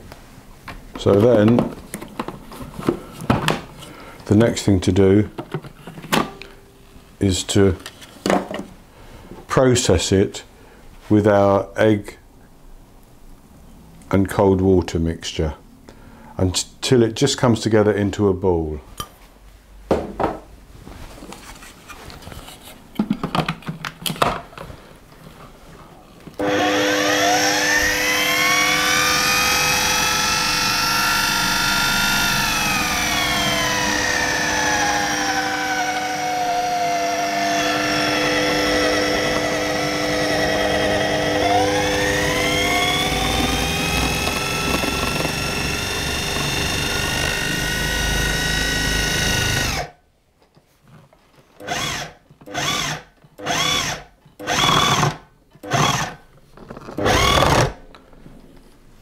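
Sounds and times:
food processor motor whining: 0:26.4 - 0:49.9, 0:51.6 - 0:56.2, 0:56.8 - 0:57.8.

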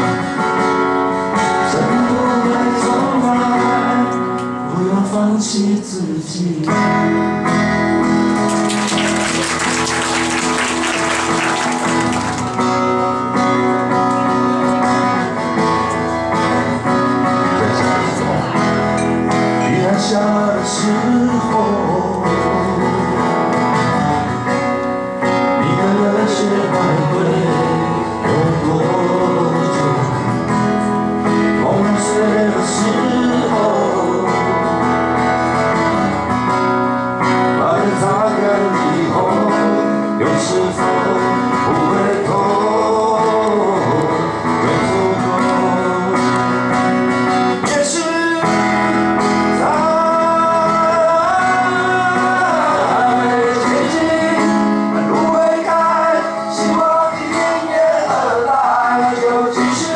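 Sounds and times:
acoustic guitar strumming: 0:00.0 - 0:59.9
men singing pop song: 0:01.5 - 0:07.0, 0:19.6 - 0:23.5, 0:25.5 - 0:30.6, 0:31.5 - 0:34.7, 0:37.5 - 0:46.7, 0:47.3 - 0:59.9.

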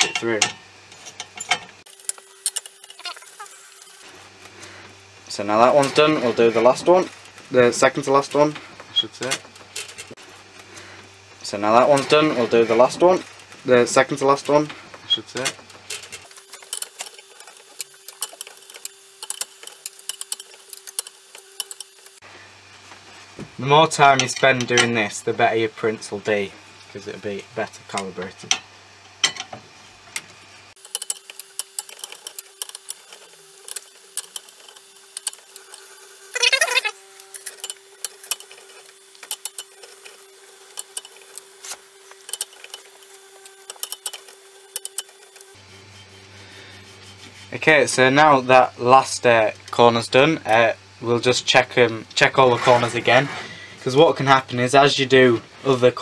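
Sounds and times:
steady hum: 0:00.0 - 0:56.0
printer humming: 0:01.8 - 0:22.7.

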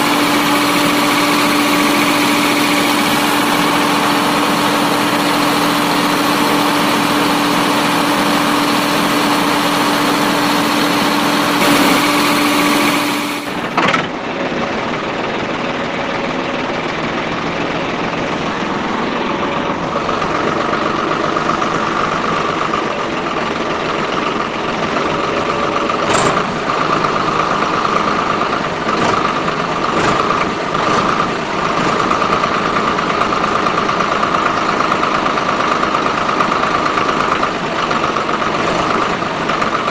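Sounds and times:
small electric motor whining: 0:05.9 - 0:13.7.

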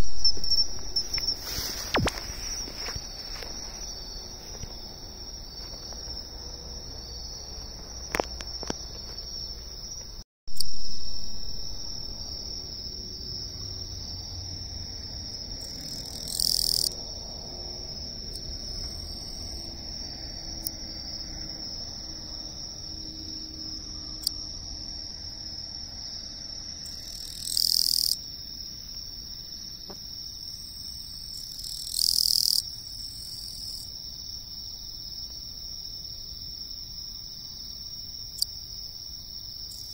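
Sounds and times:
high-pitched insect trill: 0:00.0 - 0:39.9
loud thump: 0:01.8 - 0:03.2.

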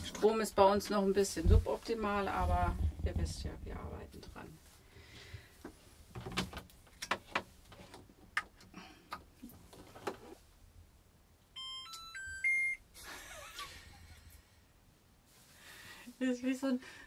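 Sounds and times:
washing machine beeping melody: 0:11.6 - 0:12.9.

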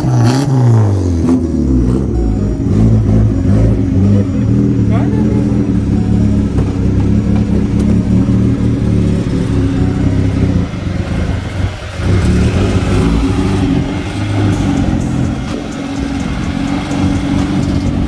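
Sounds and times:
car engine running: 0:00.0 - 0:18.0.

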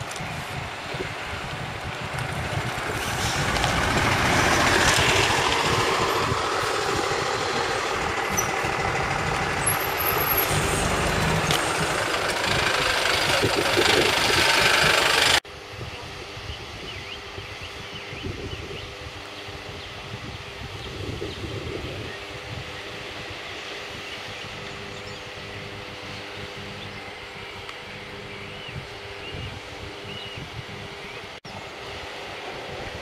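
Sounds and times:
bus diesel engines passing: 0:00.0 - 0:15.4, 0:22.2 - 0:33.0.

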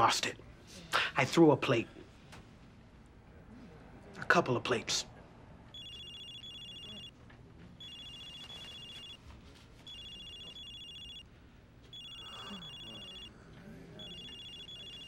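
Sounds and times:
cell phone ringing: 0:05.8 - 0:07.2, 0:07.8 - 0:09.2, 0:09.8 - 0:13.3, 0:14.0 - 0:15.0.

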